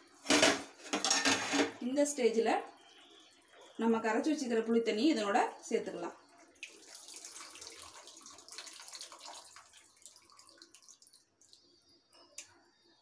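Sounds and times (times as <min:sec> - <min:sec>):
spoon scraping in pan: 0:00.2 - 0:01.8
water trickling into pan: 0:06.2 - 0:12.4.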